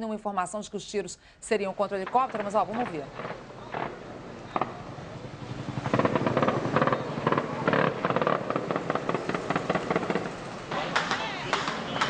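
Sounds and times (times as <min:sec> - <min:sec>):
helicopter rotor beating: 0:02.0 - 0:12.0
automatic gunfire: 0:02.8 - 0:04.0.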